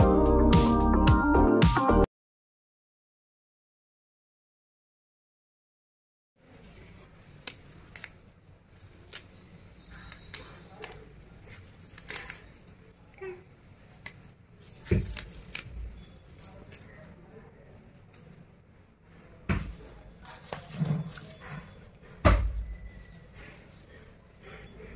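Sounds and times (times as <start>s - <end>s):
leaves snapping and rustling: 6.6s - 18.5s.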